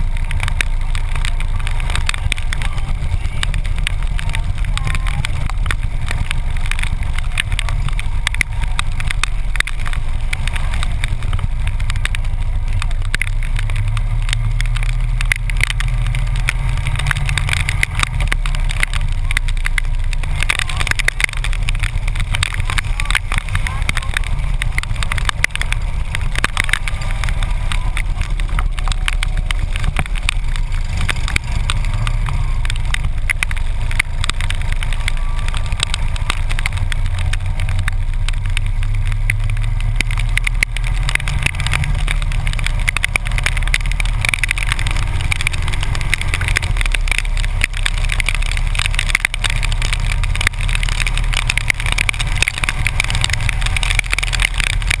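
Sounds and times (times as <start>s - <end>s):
hiss of a wet road: 0.0s - 55.0s
motorcycle engine rumble: 0.0s - 55.0s
raindrops clicking on camera: 0.0s - 55.0s.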